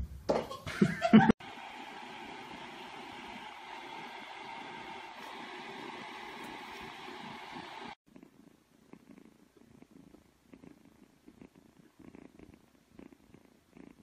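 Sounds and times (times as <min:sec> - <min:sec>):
steady rushing noise: 0:01.4 - 0:08.0
kitten purring: 0:02.3 - 0:14.0.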